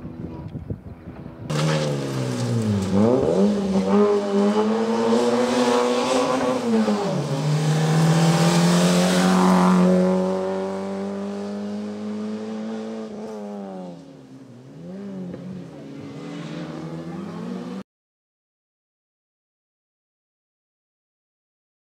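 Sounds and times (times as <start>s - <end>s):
rally car engine revving: 1.5s - 14.0s, 14.6s - 17.8s.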